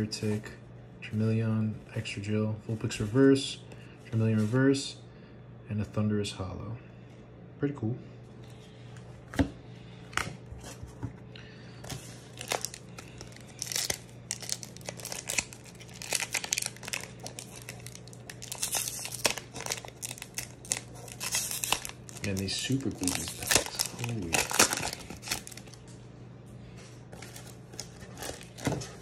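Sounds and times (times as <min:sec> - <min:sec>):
foil wrapper crinkling and tearing: 0:12.2 - 0:25.9, 0:27.1 - 0:29.0.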